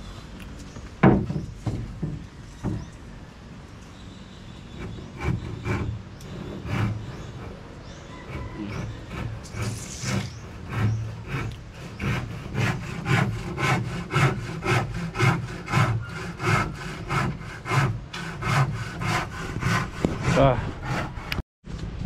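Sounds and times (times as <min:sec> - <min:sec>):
handsaw cutting wood: 0:04.8 - 0:21.4.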